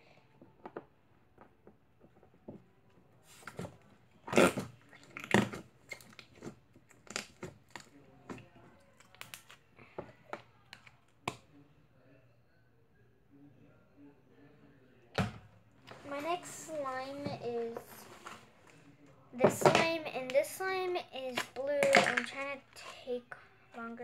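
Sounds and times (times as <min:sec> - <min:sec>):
slime squelches: 0:03.3 - 0:10.9
slime squishing with wet clicks: 0:04.9 - 0:09.6.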